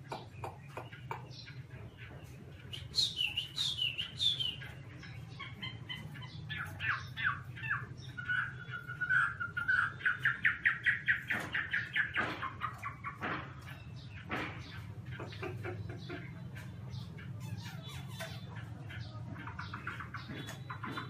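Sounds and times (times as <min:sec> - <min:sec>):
bird singing varied song: 0:00.0 - 0:21.0.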